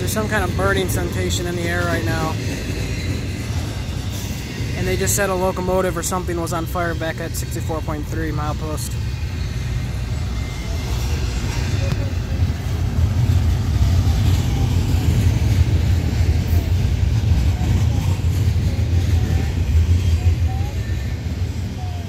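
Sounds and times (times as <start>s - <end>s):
freight train wheels rumbling on rail: 0.0s - 22.0s.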